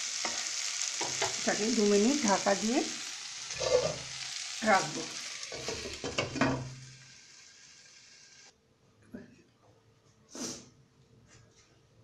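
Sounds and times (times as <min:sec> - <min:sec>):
food sizzling in oil: 0:00.0 - 0:08.5.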